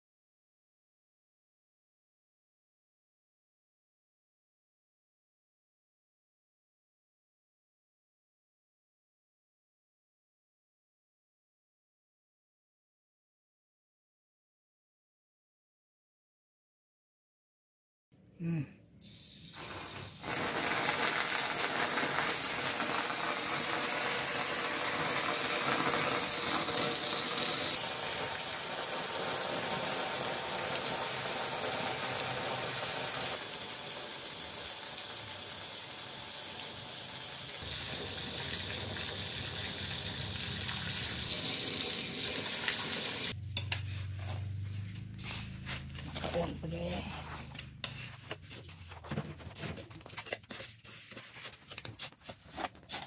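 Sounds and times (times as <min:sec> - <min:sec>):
water spraying on hot metal: 0:19.1 - 0:43.4.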